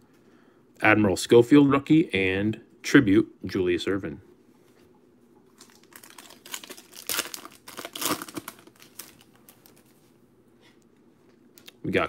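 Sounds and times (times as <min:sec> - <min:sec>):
foil wrapper crinkling and tearing: 0:05.6 - 0:10.0.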